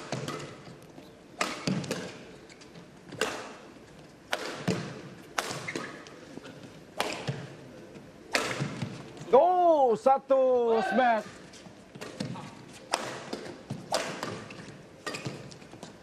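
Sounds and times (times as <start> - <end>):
rackets hitting shuttlecock: 0.0 - 2.4, 3.1 - 7.6, 8.2 - 9.2, 12.0 - 16.0.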